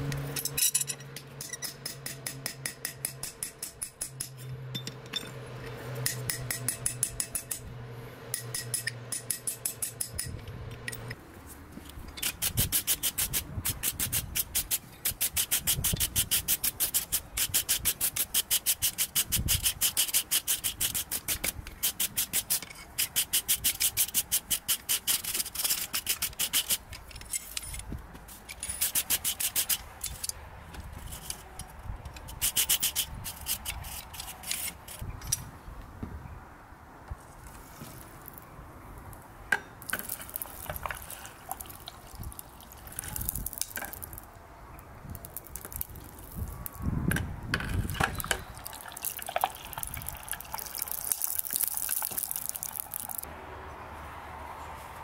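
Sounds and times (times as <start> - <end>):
wire brush scrubbing steel: 12.2 - 31.6, 32.2 - 35.1.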